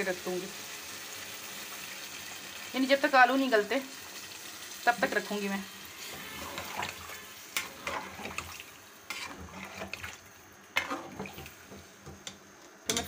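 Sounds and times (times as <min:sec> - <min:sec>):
faint sizzle of curry: 0:00.0 - 0:13.0
metal ladle scraping a pot: 0:06.0 - 0:10.2, 0:10.8 - 0:11.5.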